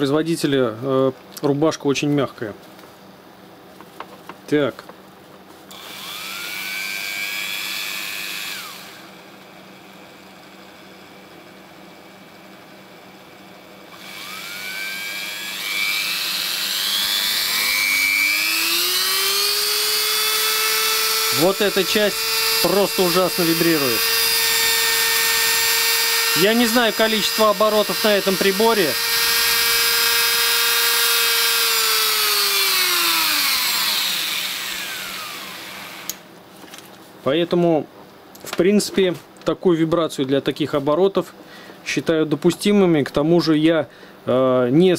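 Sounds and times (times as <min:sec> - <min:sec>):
rotary tool motor whine: 0:05.7 - 0:11.3, 0:13.9 - 0:36.2.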